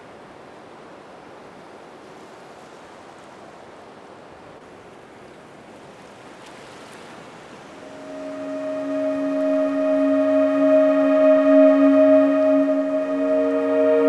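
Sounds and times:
ocean surf: 0:05.8 - 0:14.0.

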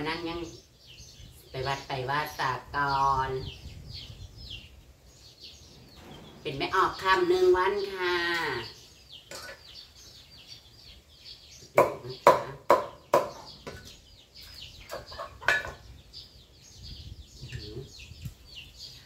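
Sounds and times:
faint birds chirping: 0:00.0 - 0:19.0.

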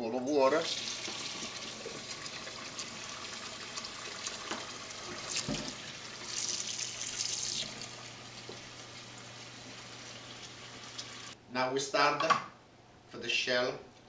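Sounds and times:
faucet running water: 0:00.4 - 0:11.4.

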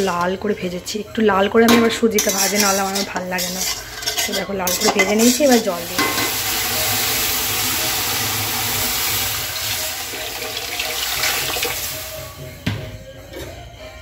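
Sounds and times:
water splashing into hot pan: 0:05.8 - 0:12.1.

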